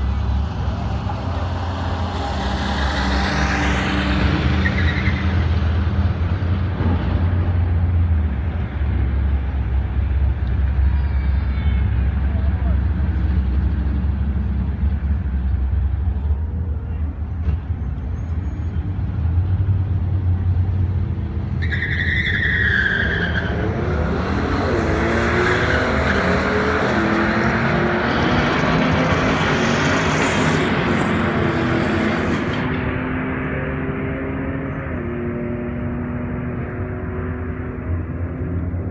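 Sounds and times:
cars accelerating hard: 0.0 - 10.8, 19.0 - 38.9
engines idling with deep rumble: 5.9 - 21.6.

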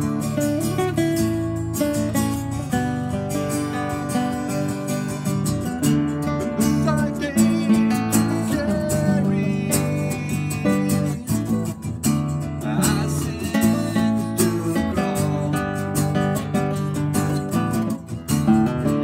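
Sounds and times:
acoustic guitar strumming chords: 0.0 - 19.0
classical guitar picking: 0.0 - 19.0
man singing: 6.4 - 17.0.

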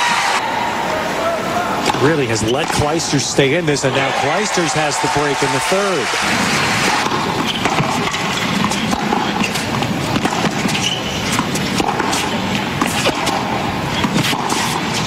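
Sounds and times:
stadium crowd murmur: 0.0 - 7.4
tennis ball thuds: 6.8 - 15.0.

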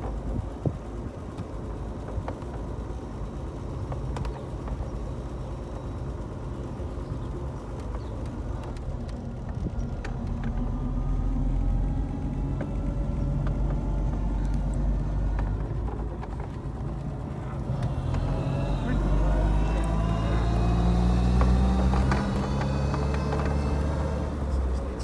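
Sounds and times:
car engine from inside cabin: 0.0 - 25.0
road rumble: 0.0 - 25.0
small rattles and clicks: 0.0 - 25.0.

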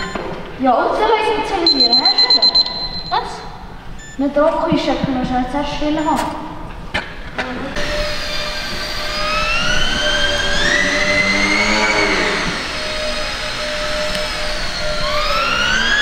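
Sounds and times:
model plane motor whining: 7.8 - 16.0.

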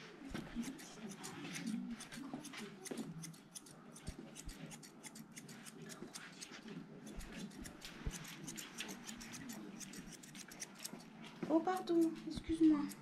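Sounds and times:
grooming scissors snipping fur: 0.2 - 13.0.

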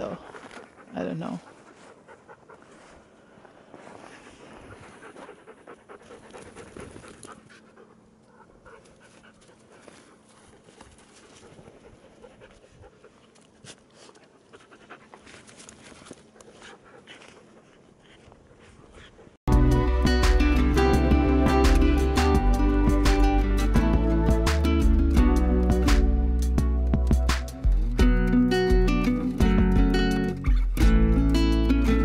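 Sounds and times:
dog panting: 0.0 - 3.2, 3.9 - 19.4.

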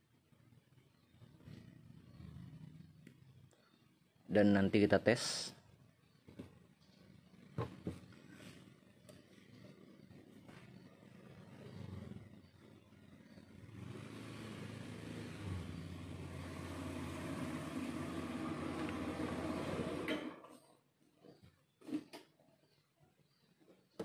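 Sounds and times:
engine running: 7.5 - 20.5.

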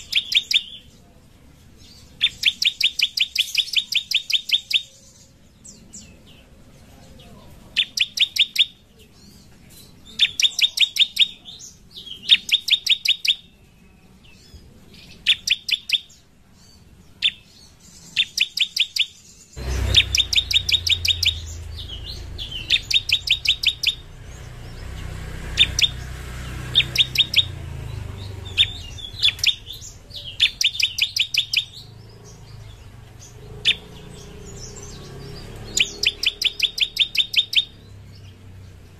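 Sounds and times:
bird singing rattling trills: 0.0 - 1.1, 1.8 - 38.9
low background rumble: 19.6 - 30.9.

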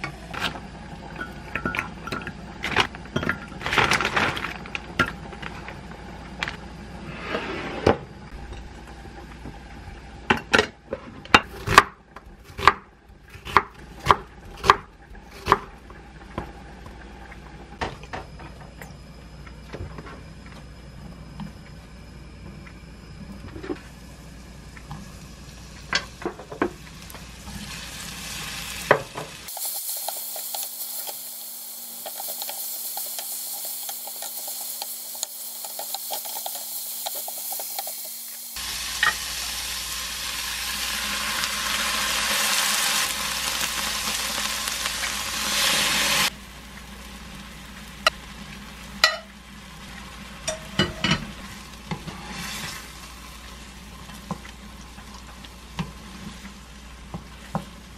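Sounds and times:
food sizzling in frying pan: 23.8 - 57.9.

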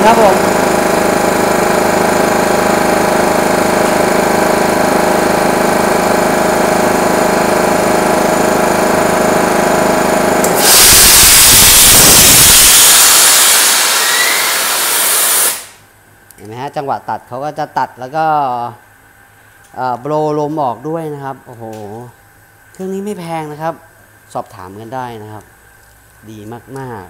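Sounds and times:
electric motor running down: 0.0 - 15.8
air compressor running: 0.0 - 15.9
loud air hiss: 10.4 - 15.8.

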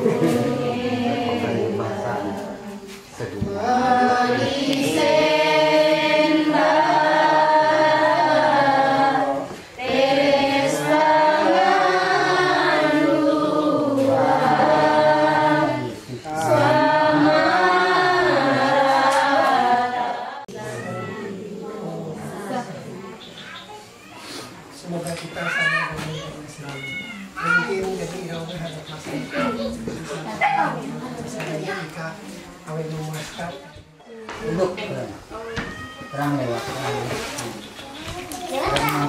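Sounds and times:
group singing a hymn: 0.0 - 23.3.

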